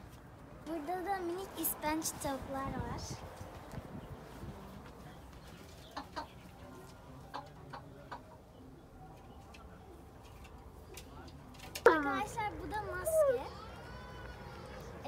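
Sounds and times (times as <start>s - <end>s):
chickens clucking quietly: 5.4s - 11.0s.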